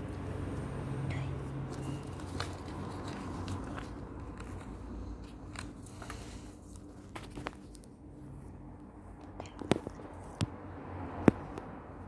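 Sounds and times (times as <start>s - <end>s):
paper crinkling and crackling: 1.6s - 8.1s.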